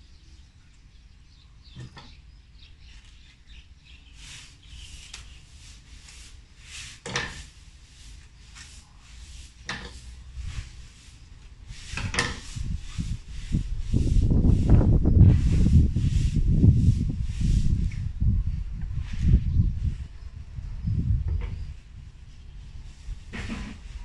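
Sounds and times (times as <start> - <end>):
leaves rustling and crackling: 4.1 - 17.9.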